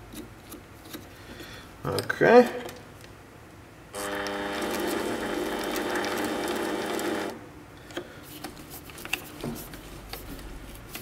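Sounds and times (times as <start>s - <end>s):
lathe gear whine: 4.0s - 7.4s.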